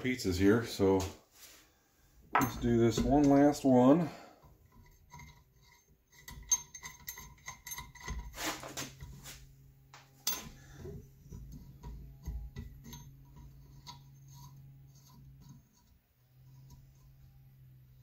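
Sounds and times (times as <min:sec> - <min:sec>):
scraping rub: 0:08.0 - 0:09.6, 0:13.2 - 0:17.4.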